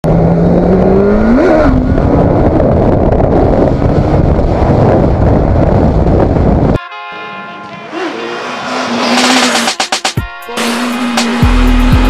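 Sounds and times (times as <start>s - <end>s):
wind rushing over microphone: 0.0s - 6.8s
motorcycle engine: 7.4s - 12.0s.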